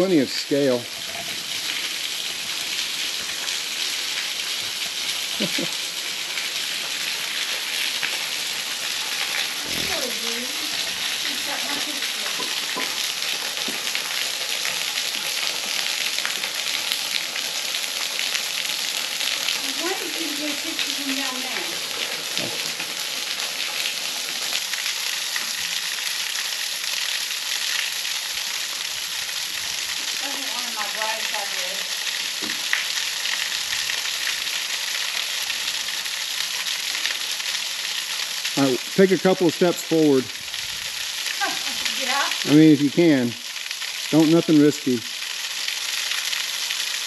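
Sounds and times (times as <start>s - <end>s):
waterfall splashing onto rock: 0.0s - 47.0s.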